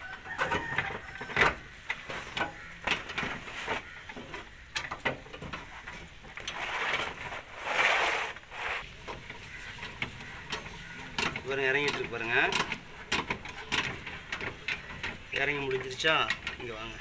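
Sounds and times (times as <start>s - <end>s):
loud scraping: 5.7s - 11.2s
chain winch clicking: 9.6s - 17.0s.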